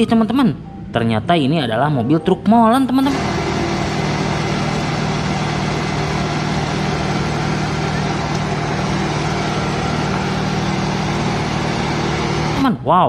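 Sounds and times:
engine idling: 0:03.0 - 0:12.7.

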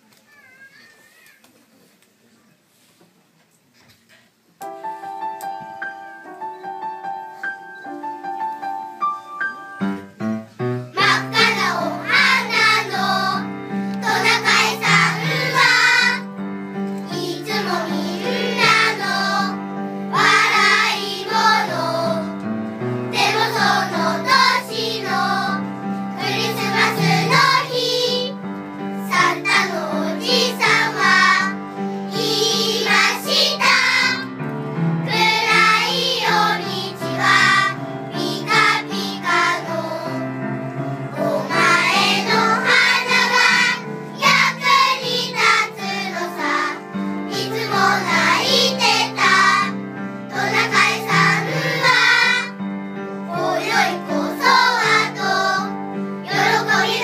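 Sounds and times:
children's choir singing: 0:10.9 - 0:16.4, 0:17.0 - 0:34.4, 0:35.1 - 0:57.0.

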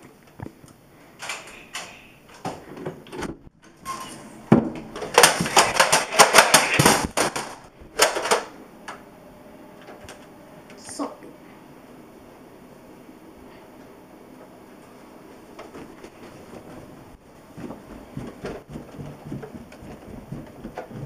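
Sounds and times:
clatter of clicks and knocks: 0:05.0 - 0:08.5.

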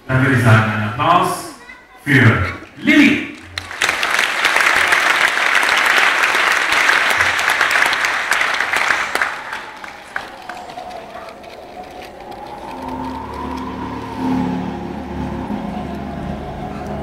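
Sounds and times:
audience applauding: 0:02.1 - 0:14.6.

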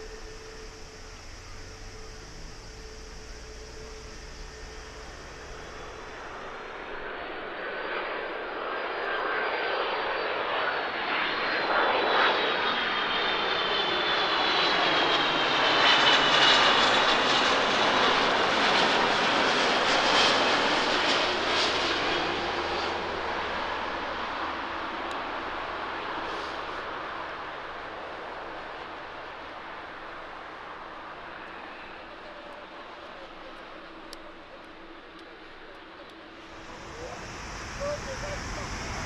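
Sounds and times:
high engine whine falling: 0:00.0 - 0:08.5, 0:35.2 - 0:39.0
jetliner engine noise: 0:00.0 - 0:39.0.

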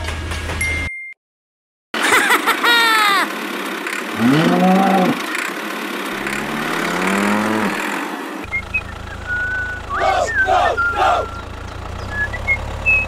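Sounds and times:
high falling cry: 0:02.0 - 0:05.3, 0:09.9 - 0:11.4
cow mooing: 0:04.1 - 0:05.3, 0:06.2 - 0:07.9.

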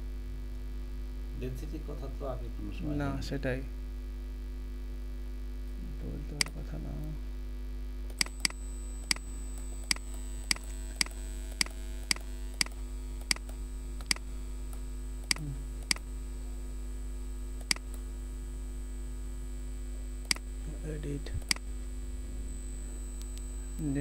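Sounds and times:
steady electrical hum: 0:00.0 - 0:24.0
computer mouse clicking: 0:08.1 - 0:16.0, 0:17.6 - 0:18.0
faint high whine: 0:08.2 - 0:24.0.

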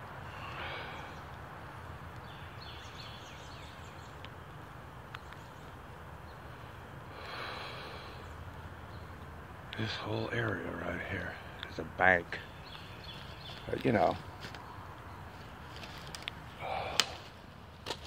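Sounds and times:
person breathing out heavily: 0:00.2 - 0:01.3, 0:07.1 - 0:08.3, 0:16.5 - 0:17.4.

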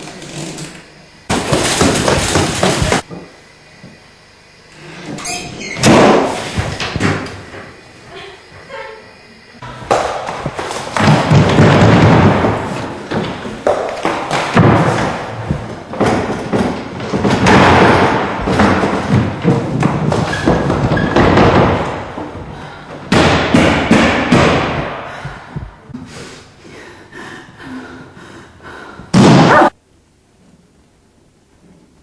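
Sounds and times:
heavy thumps and bangs: 0:09.8 - 0:26.0.

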